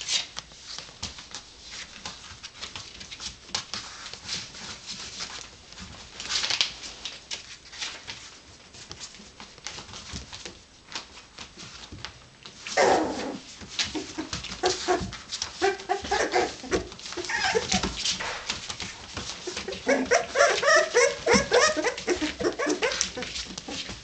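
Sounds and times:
puppies whimpering and squealing: 12.7 - 18.1, 19.3 - 24.0
puppies yipping: 14.0 - 18.0, 19.2 - 24.0.

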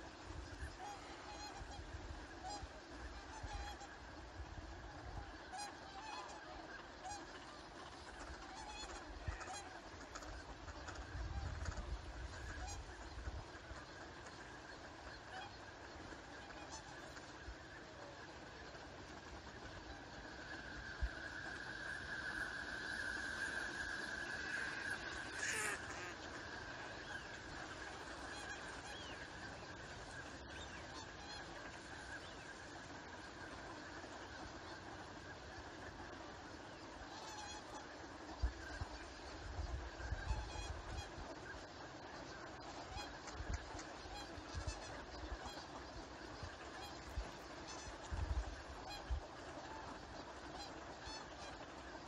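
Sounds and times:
swans honking: 0.0 - 4.1, 5.2 - 39.3, 42.2 - 52.0
chatter of many birds: 0.0 - 52.0
flock of ducks calling: 0.0 - 52.0
duck honking call: 21.9 - 32.4.

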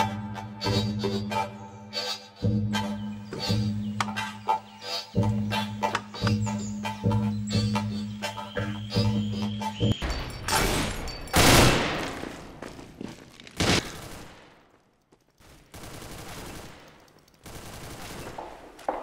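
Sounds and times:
video game gunshots: 10.1 - 12.9, 13.5 - 19.0.

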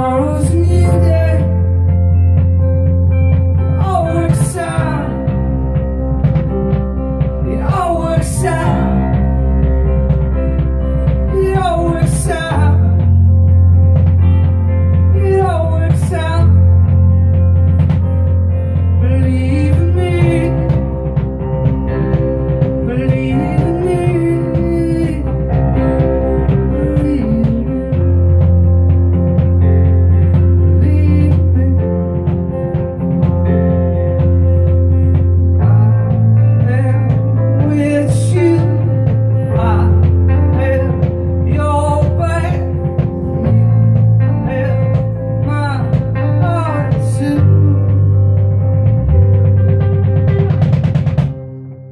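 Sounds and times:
man singing: 0.0 - 2.6, 3.6 - 5.8, 7.4 - 10.0, 10.9 - 13.4, 15.0 - 17.2, 18.7 - 21.4, 22.2 - 28.8, 30.1 - 32.9, 34.5 - 48.4
rock band playing: 0.0 - 51.9.

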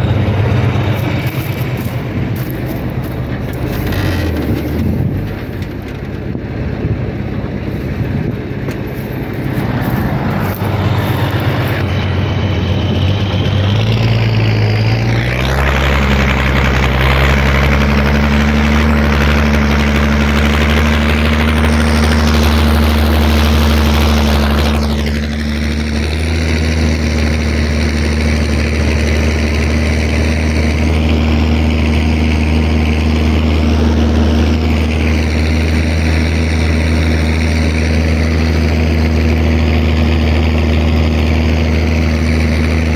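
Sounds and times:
tractor diesel engine running: 0.0 - 42.9.

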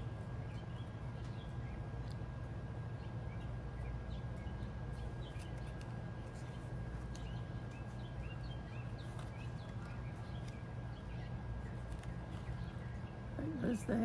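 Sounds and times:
steady low hum: 0.0 - 14.0
card stock rustling: 9.0 - 10.6, 11.6 - 12.6.

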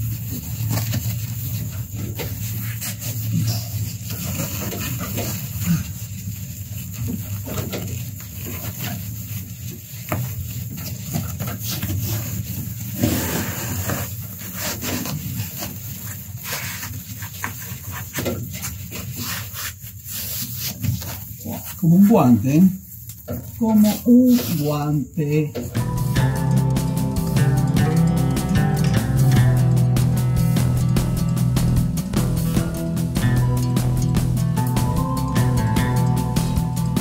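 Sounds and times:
foam insulation rustling: 0.0 - 37.0
steady low hum: 25.7 - 37.0.

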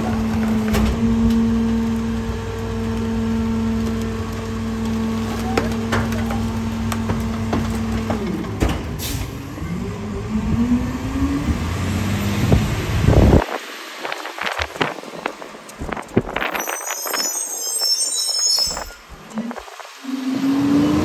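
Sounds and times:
garbage truck engine: 0.0 - 21.0
knocks and clanks: 5.4 - 9.0.

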